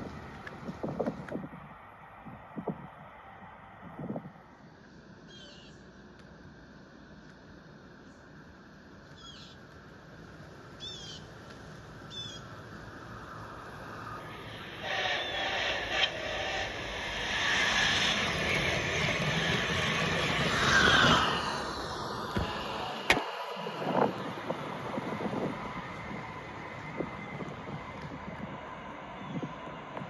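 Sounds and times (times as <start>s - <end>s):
toy train motor whine and rattle: 10.9s - 22.7s.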